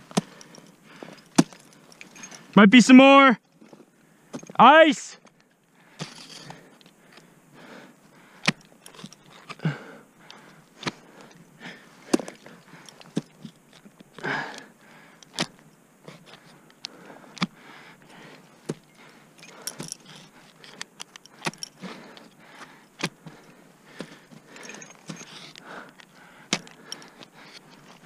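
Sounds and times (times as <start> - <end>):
heavy breath: 0.2 - 2.5, 5.8 - 8.6, 9.5 - 13.1, 14.2 - 15.3, 16.2 - 28.0
metal gear clinking: 6.0 - 6.6, 24.6 - 25.5.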